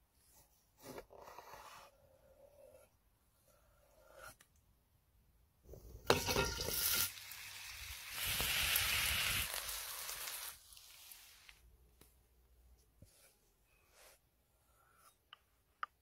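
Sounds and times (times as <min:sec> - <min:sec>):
meat sizzling in a skillet: 0:06.1 - 0:11.6.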